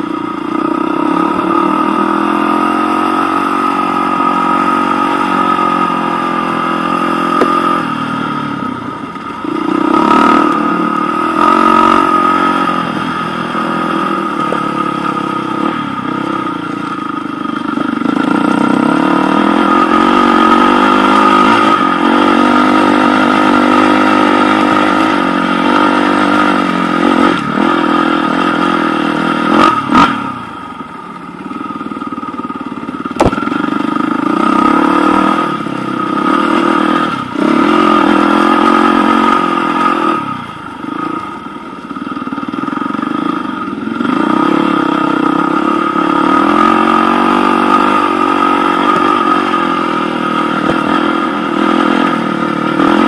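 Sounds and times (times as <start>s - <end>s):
motorcycle engine revving: 0.0s - 53.0s
sharp knocks: 33.1s - 33.5s.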